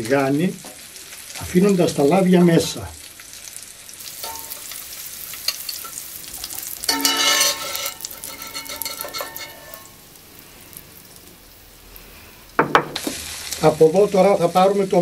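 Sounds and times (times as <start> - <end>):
sausage sizzling in oil: 0.0 - 15.0
skimmer scraping a pan: 6.9 - 10.0
ringing knock: 12.6 - 13.0.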